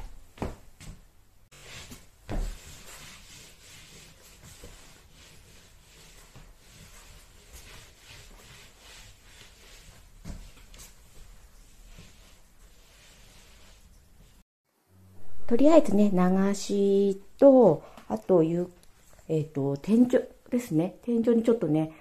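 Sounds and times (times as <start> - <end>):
rubbing strokes on wooden floor: 1.5 - 14.4.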